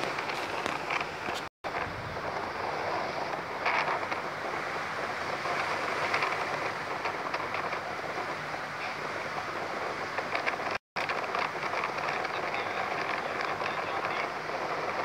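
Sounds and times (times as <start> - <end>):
rain: 0.0 - 15.0
storm wind through trees: 0.0 - 15.0.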